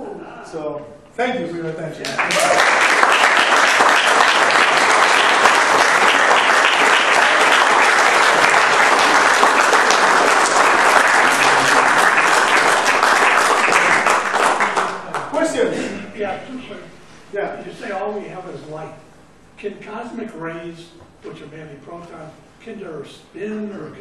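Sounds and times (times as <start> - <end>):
audience applauding: 2.0 - 15.7.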